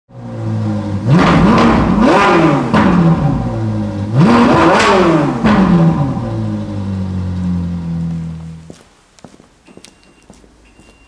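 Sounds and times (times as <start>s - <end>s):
car engine idling and revving: 0.1s - 8.8s.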